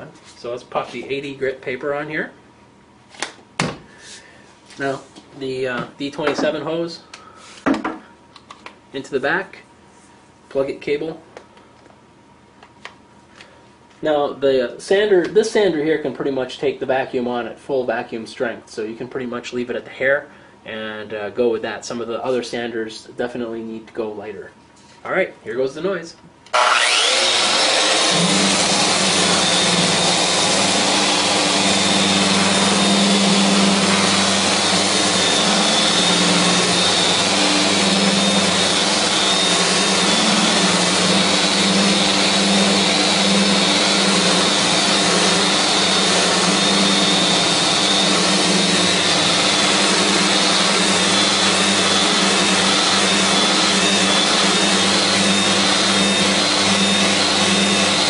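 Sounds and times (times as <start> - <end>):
dust extractor suction: 26.5 - 58.0
sander grinding wood: 26.5 - 58.0.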